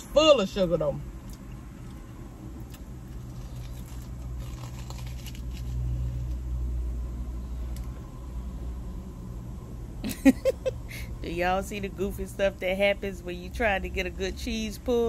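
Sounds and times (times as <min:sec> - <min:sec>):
low vehicle rumble: 0:00.0 - 0:15.0
crunches of biting food: 0:01.2 - 0:06.4.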